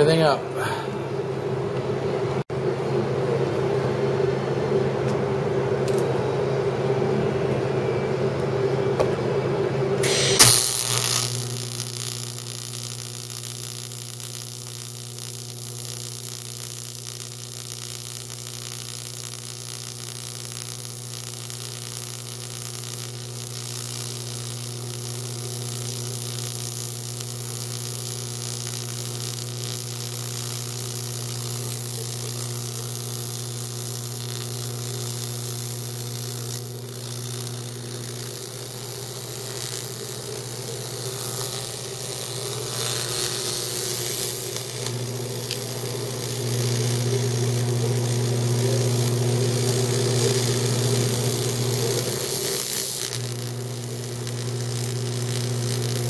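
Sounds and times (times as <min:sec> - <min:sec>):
welding arc buzzing: 0:00.0 - 0:01.0, 0:09.9 - 0:56.0
low mains hum: 0:00.0 - 0:56.0
high hiss: 0:10.0 - 0:12.9.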